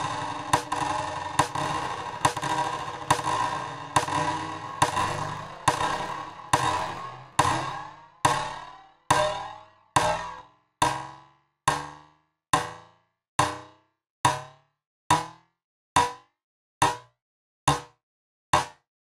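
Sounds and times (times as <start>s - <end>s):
ringing percussive hits with delay: 0.0s - 12.0s.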